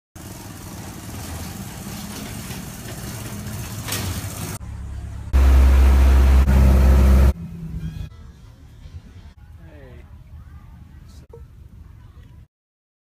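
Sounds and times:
vehicle engine running: 0.2s - 7.9s
boat engine rumble: 0.3s - 7.6s.

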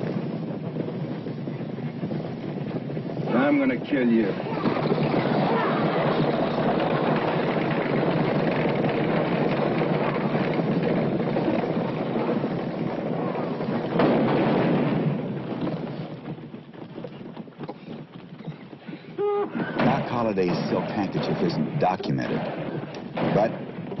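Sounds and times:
gunshots: 3.3s - 16.4s, 19.5s - 24.0s.

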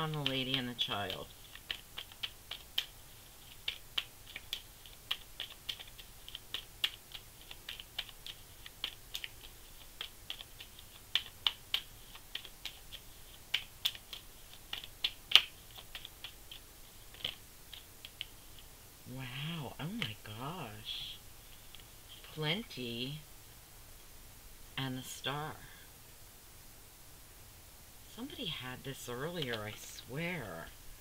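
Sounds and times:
cards being shuffled: 0.0s - 18.7s.

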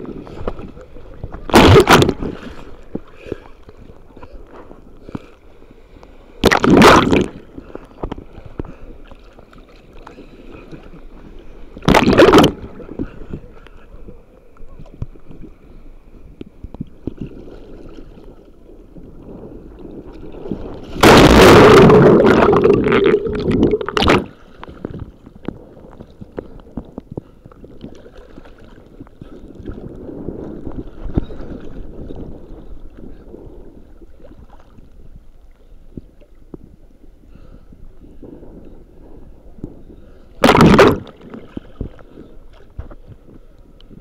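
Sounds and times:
sea water moving: 0.0s - 44.0s
water rushing over microphone: 0.0s - 44.0s.

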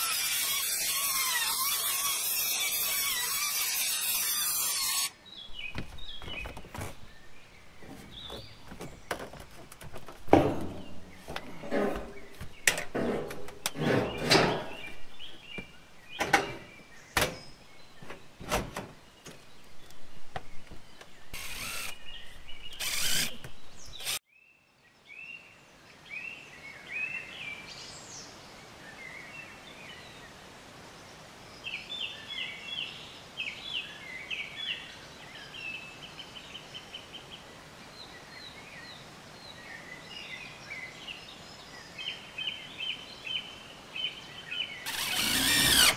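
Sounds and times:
outdoor background noise: 0.0s - 45.9s
birds chirping and singing: 1.1s - 24.2s.

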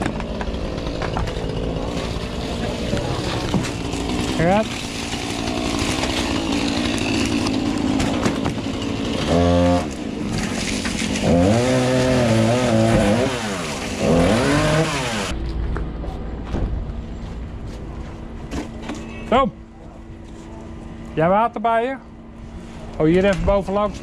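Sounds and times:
small engine revving: 0.9s - 10.4s, 11.2s - 15.4s.

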